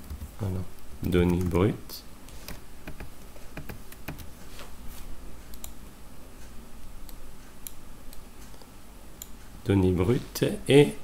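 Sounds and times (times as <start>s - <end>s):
keyboard keys clicking: 2.5s - 4.3s.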